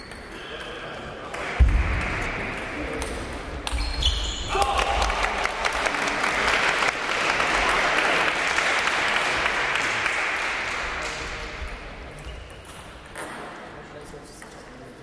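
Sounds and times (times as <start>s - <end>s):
crowd clapping and cheering: 4.5s - 11.6s.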